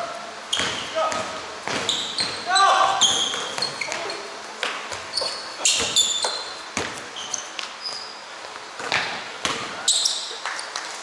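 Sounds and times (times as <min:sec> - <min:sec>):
basketball bouncing on court: 0:00.5 - 0:07.1, 0:08.8 - 0:09.8
sneakers squeaking on floor: 0:00.5 - 0:10.8.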